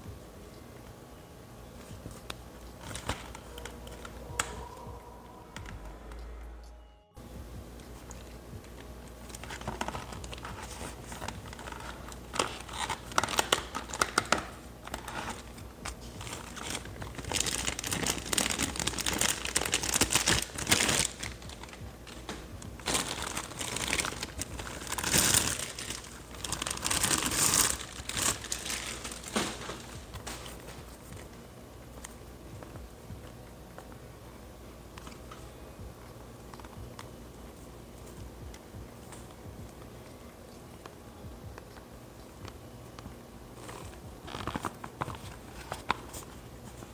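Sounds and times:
plastic packaging crinkling: 2.1s - 5.1s, 7.8s - 31.4s, 42.9s - 46.9s.

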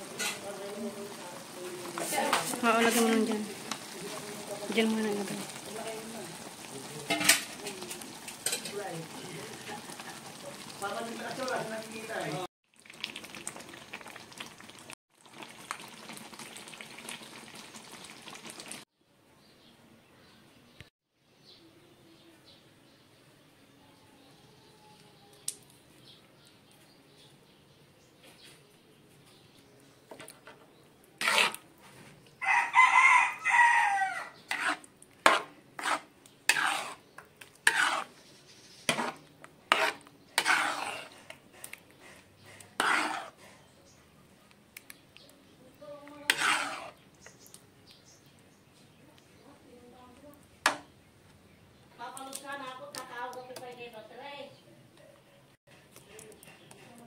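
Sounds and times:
metal spoon scraping a pan: 0.0s - 0.7s, 1.8s - 5.8s, 7.0s - 11.0s, 30.1s - 32.2s, 34.4s - 43.8s, 46.0s - 47.6s
sauce sizzling and bubbling: 0.0s - 18.9s, 30.0s - 44.0s, 45.7s - 48.2s
rooster crowing: 32.4s - 34.4s.

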